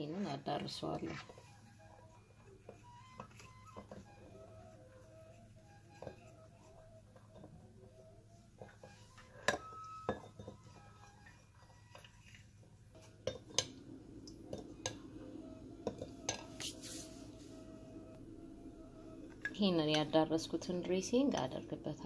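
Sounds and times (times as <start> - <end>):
metal spoon clinking in ceramic bowl: 9.4 - 10.6.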